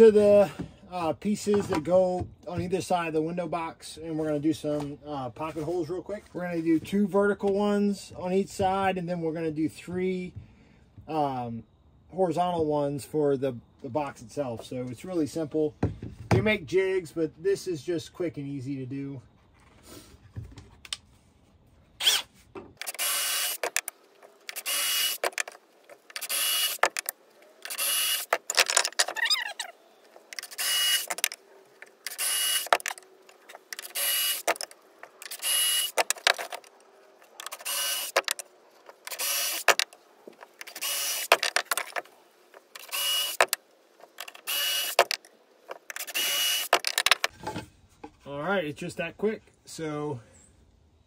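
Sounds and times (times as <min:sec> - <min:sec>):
cordless drill drilling bursts: 0:22.0 - 0:23.8, 0:24.5 - 0:25.4, 0:26.2 - 0:27.0, 0:27.6 - 0:28.4, 0:30.4 - 0:31.3, 0:32.1 - 0:32.9, 0:33.8 - 0:34.6, 0:35.2 - 0:36.1, 0:37.5 - 0:38.3, 0:39.1 - 0:39.8, 0:40.7 - 0:41.4, 0:42.8 - 0:43.6, 0:44.4 - 0:45.2, 0:46.0 - 0:46.9.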